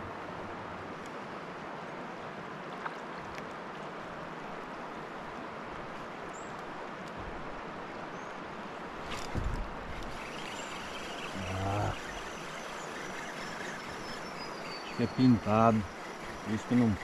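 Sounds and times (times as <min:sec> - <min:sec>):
faint high chirps: 0:10.1 - 0:17.0.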